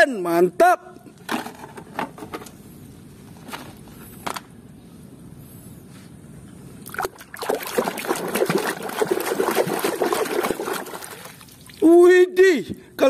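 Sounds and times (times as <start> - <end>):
water splashing in plastic tub: 6.8 - 11.9.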